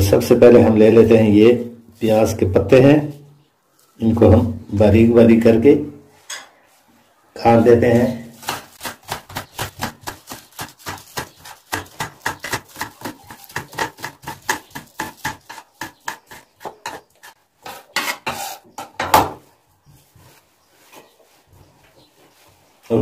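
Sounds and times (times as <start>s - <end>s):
scraping of chopped greens: 8.0s - 18.7s
knife chopping on stone countertop: 8.4s - 17.4s.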